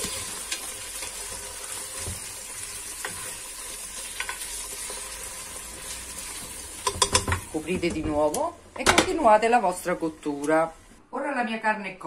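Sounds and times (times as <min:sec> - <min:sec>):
beef sizzling in oil: 0:00.0 - 0:07.6
utensil tapping pot: 0:06.8 - 0:09.2.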